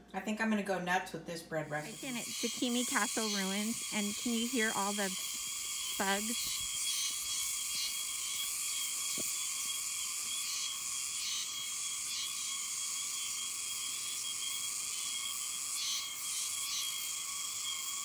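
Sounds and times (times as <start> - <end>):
insects shrilling: 1.7 - 18.0
thin high tone: 1.9 - 9.0.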